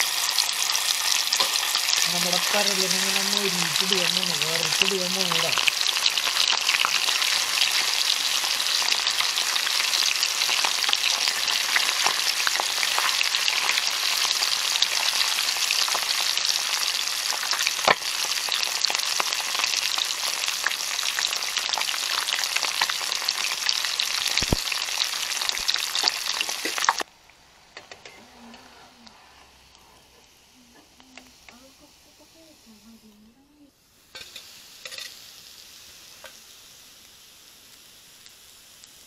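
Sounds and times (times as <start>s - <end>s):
fish deep-frying in oil: 0.0s - 28.2s, 33.9s - 39.0s
sharp pops: 24.3s - 24.7s.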